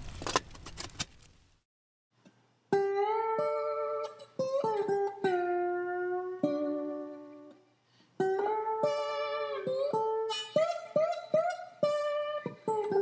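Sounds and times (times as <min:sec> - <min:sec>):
plucked guitar music: 0:02.7 - 0:13.0.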